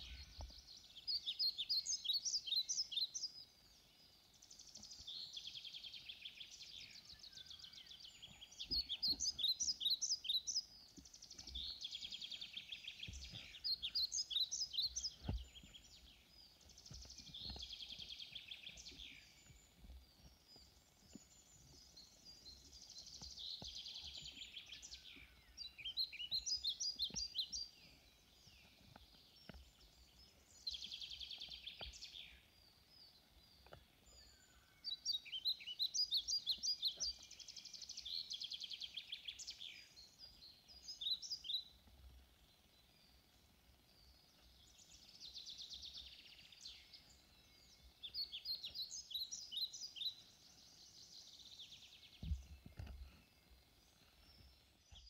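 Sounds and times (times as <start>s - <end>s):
songbirds chirping: 0.0s - 55.0s
soft low thump: 15.1s - 15.8s, 52.1s - 53.1s.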